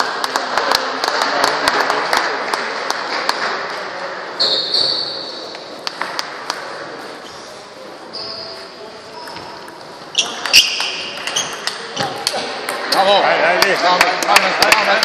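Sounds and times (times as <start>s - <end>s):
background chatter: 0.0s - 15.0s
shoes squeaking on wooden floor: 8.1s - 12.2s
table tennis balls clicking: 9.2s - 15.0s.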